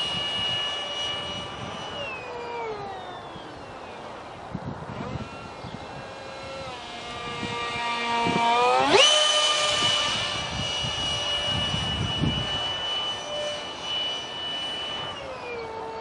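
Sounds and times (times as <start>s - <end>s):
electric ducted fan whining: 0.0s - 16.0s.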